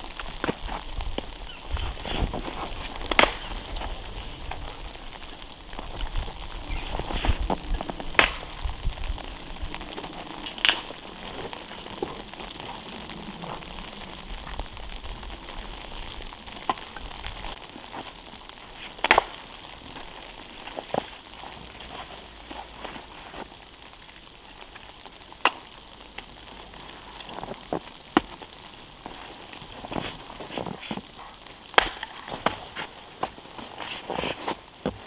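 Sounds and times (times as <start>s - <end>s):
wood crackling and rustling: 0.0s - 35.0s
axe chopping wood: 3.1s - 3.5s, 31.8s - 32.6s.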